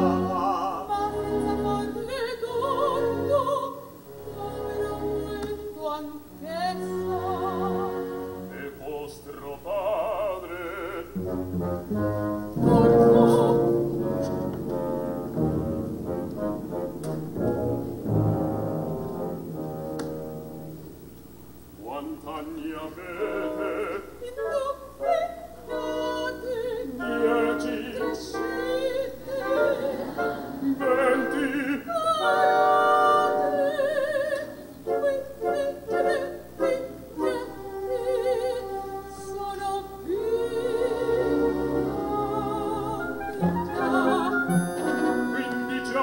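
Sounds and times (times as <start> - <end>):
opera singing: 0.0 - 19.4, 21.8 - 46.0
orchestral accompaniment: 11.1 - 21.4, 40.2 - 46.0.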